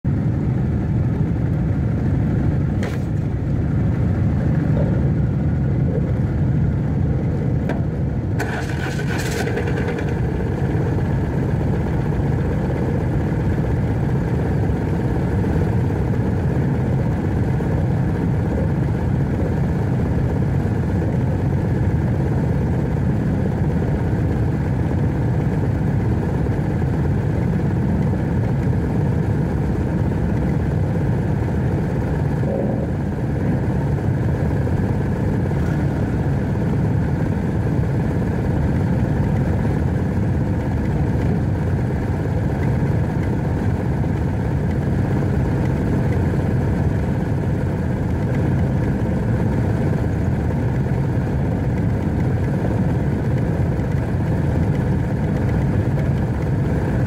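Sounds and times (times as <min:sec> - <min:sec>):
motorcycle engine rumbling: 0:00.2 - 0:22.9, 0:28.2 - 0:57.0.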